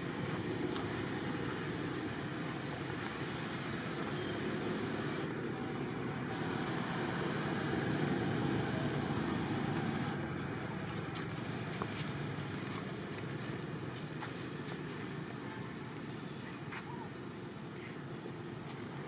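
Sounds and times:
vehicle passing: 0.0s - 16.3s
road traffic rush: 0.0s - 19.0s.

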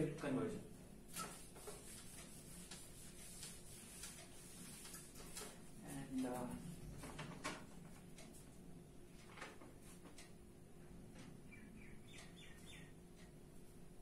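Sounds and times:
faint bird chirps: 11.4s - 13.0s.

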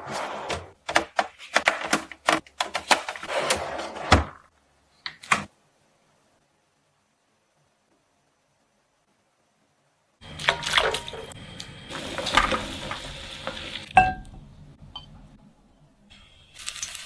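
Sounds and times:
drawer sliding and rattling: 0.0s - 1.6s, 2.9s - 4.5s.

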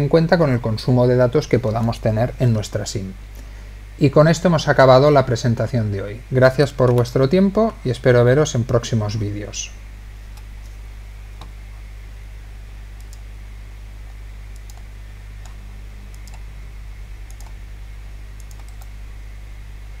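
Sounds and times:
low electrical hum: 0.0s - 20.0s
computer mouse clicks: 13.0s - 13.3s, 14.5s - 16.4s, 17.3s - 17.6s, 18.4s - 18.9s.

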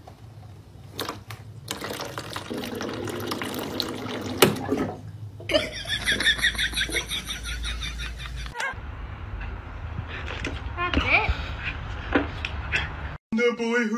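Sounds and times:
water running from tap: 1.7s - 4.7s.

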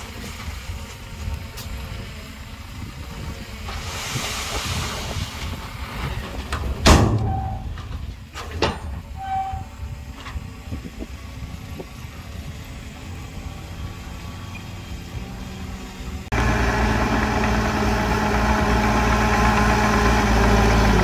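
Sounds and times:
heavy machinery engine rumble: 0.0s - 21.0s
hiss: 3.7s - 5.4s.

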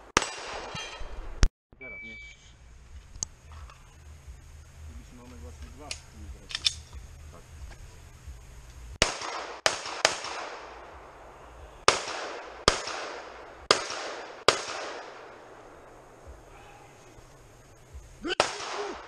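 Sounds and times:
pistol shots echoing: 9.0s - 11.2s, 11.8s - 16.4s, 18.3s - 19.0s.

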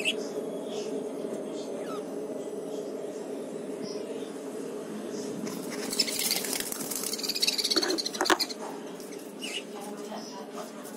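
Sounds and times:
budgerigars chattering and chirping: 0.0s - 2.1s, 5.1s - 10.9s.

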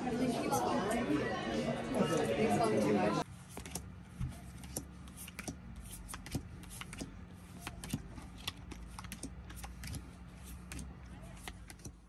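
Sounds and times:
cards clicking on a tabletop: 3.5s - 12.0s.

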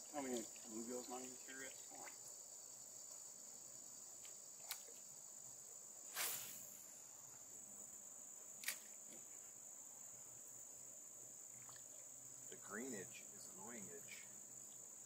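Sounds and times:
crickets chirring: 0.0s - 15.0s
brief rushing swish: 6.1s - 6.8s.

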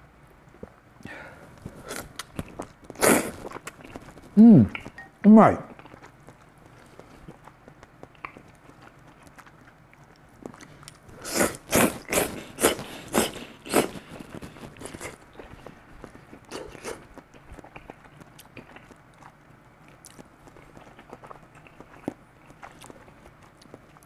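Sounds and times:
person chewing: 1.5s - 5.0s, 5.7s - 24.0s
person slurping noodles: 3.0s - 4.0s, 11.2s - 15.2s.

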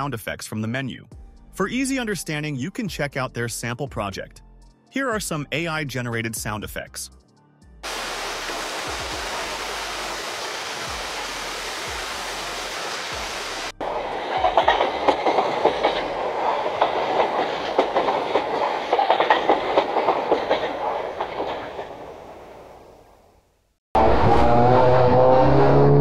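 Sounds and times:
steady falling rain: 7.8s - 15.4s
train wheels clattering on rails: 13.8s - 22.8s.

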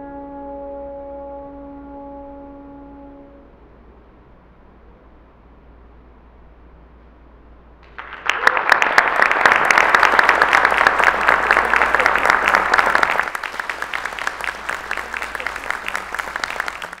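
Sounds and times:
audience applauding: 7.8s - 17.0s.

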